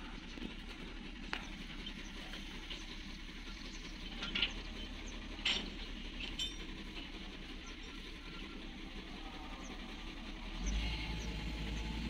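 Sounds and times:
distant diesel engines running: 0.0s - 12.0s
metal clinks: 4.2s - 7.2s.

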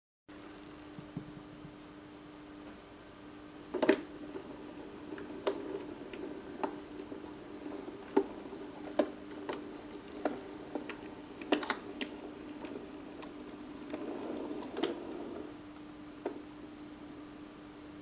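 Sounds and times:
wheels clicking on track: 4.3s - 15.5s.

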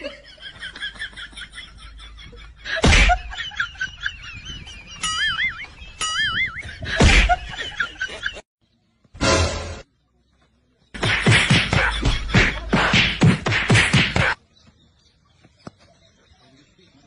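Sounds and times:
sharp slaps: 2.8s - 3.2s, 11.0s - 14.4s.

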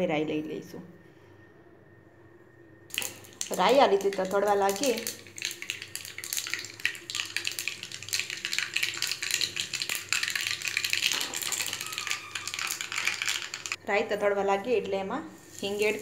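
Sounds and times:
mustard seeds popping in hot oil: 2.9s - 13.8s, 15.5s - 16.0s.

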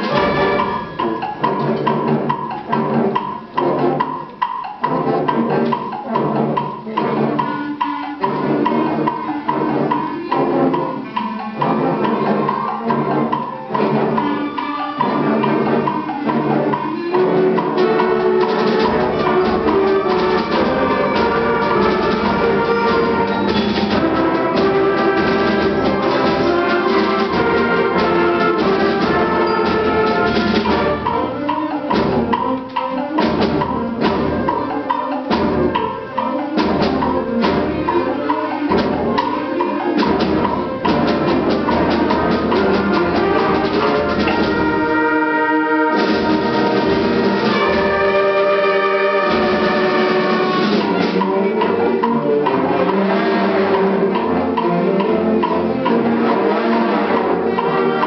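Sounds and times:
concert band playing: 0.0s - 58.0s.

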